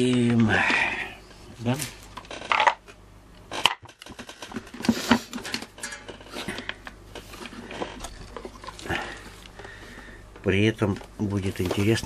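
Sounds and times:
plastic parts knocking together: 2.1 - 8.8.

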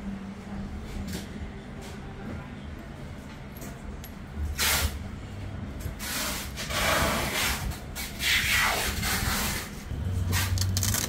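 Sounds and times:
rubbing and scraping handling noise: 6.0 - 11.0.

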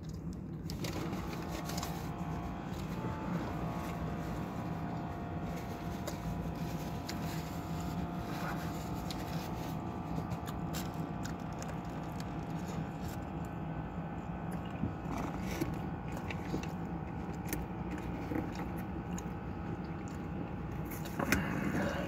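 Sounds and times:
low hum: 0.0 - 22.0
person chewing a burger: 0.0 - 22.0
paper wrapper crinkling: 0.2 - 13.6.

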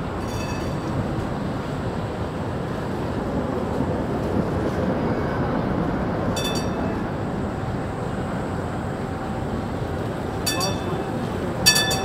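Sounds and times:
tram bell ringing: 0.0 - 2.0, 6.3 - 12.0
tram wheels rumbling on rails: 0.0 - 12.0.

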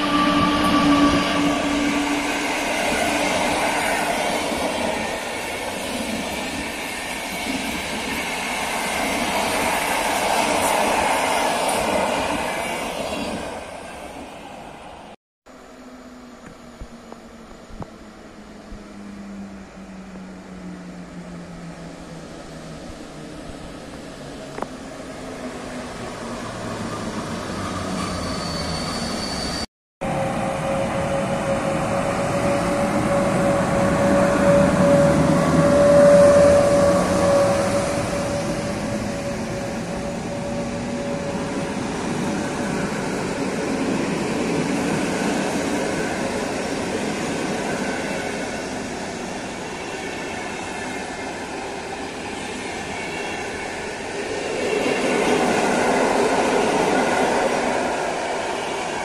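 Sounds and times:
steady squeal: 0.0 - 5.6, 26.3 - 42.7
train wheels rumbling on track: 16.4 - 59.0.

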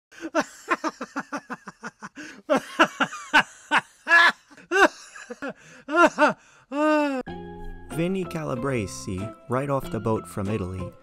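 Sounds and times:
person laughing: 0.2 - 7.2.

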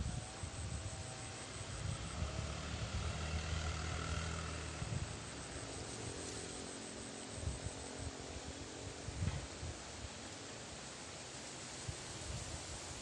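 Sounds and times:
small motorbike engine running: 1.6 - 6.4.

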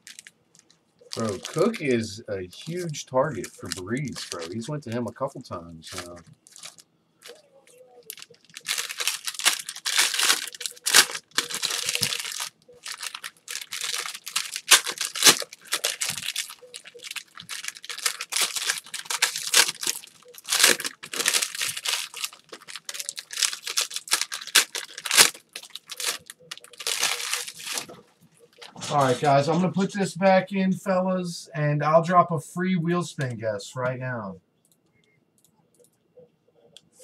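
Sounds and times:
foil wrappers crinkling and tearing: 0.0 - 5.1, 5.8 - 29.3.

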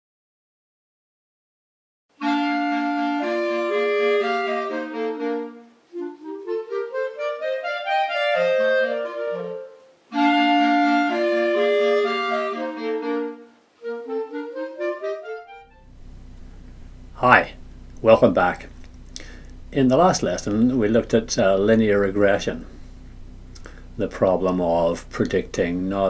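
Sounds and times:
instrumental theme tune: 2.2 - 16.0.

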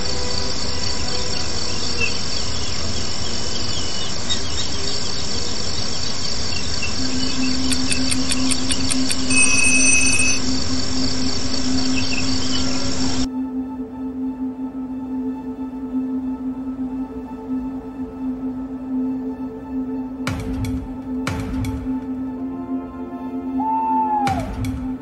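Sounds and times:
crickets chirring: 0.0 - 13.3
brief high beep: 9.3 - 10.4.

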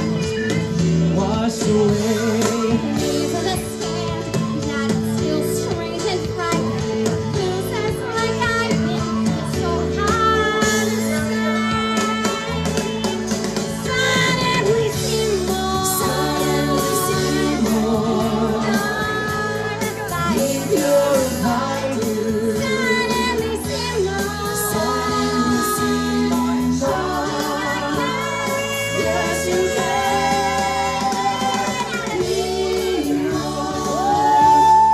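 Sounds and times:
man singing: 1.0 - 3.2, 16.0 - 19.2, 20.2 - 23.6, 24.5 - 34.9
woman singing: 1.1 - 34.9.

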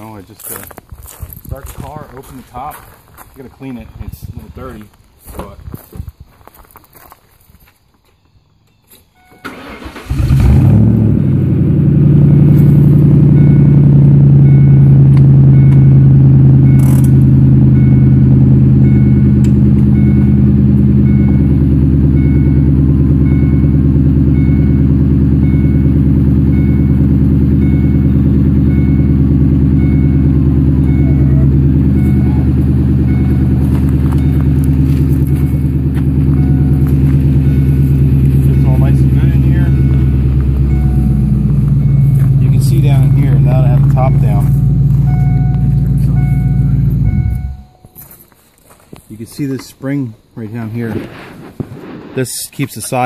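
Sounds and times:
car engine starting and idling: 8.7 - 48.1.

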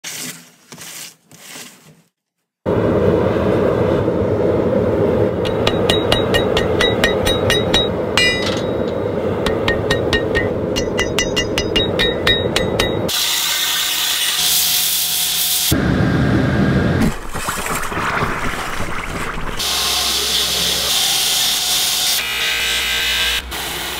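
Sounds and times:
loud steady rushing noise: 2.7 - 13.2
hammer ringing on anvil: 5.5 - 13.2.

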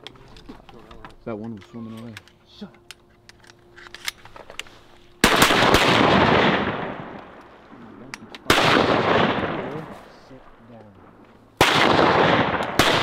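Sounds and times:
shotgun blasts with echo: 5.2 - 7.4, 8.0 - 10.1, 11.6 - 13.0.

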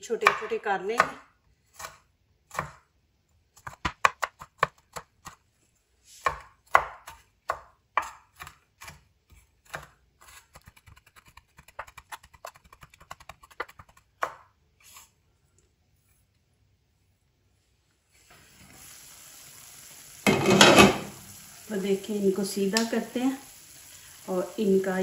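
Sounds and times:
knife chopping on wooden board: 0.2 - 2.8, 3.6 - 5.4, 6.2 - 10.8.

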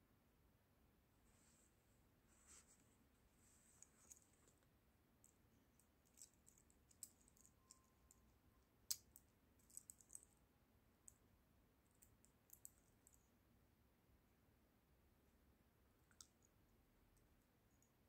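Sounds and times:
watch bracelet clicking: 6.0 - 8.2.

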